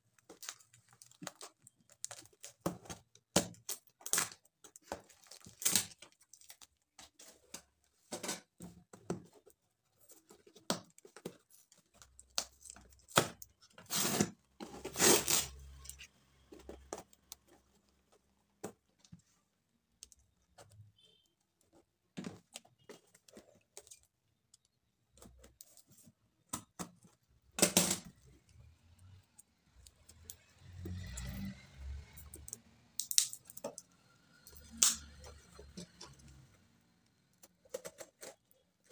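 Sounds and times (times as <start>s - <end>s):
packing tape tearing: 13.1s - 16.0s.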